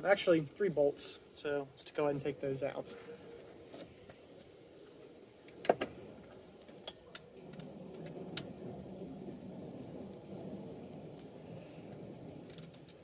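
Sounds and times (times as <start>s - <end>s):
ratchet wrench clicking: 12.5s - 13.0s.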